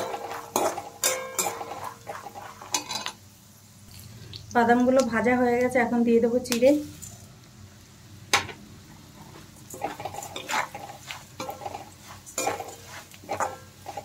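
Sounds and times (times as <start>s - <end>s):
spoon clinking on pan: 0.0s - 1.8s
metal spoon scraping a metal pan: 0.0s - 3.2s, 9.7s - 14.0s.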